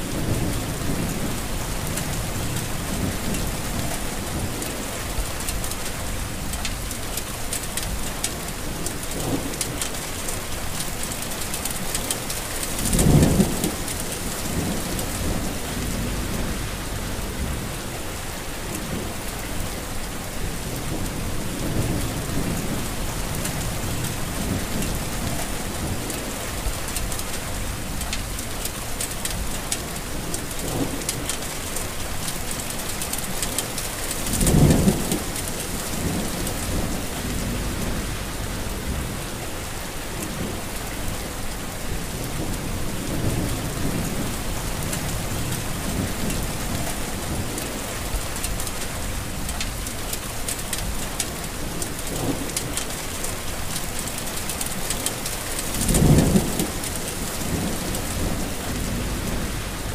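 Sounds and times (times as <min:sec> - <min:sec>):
heavy rain: 0:00.0 - 0:59.9
low rumbles: 0:14.5 - 0:17.9, 0:36.0 - 0:39.6.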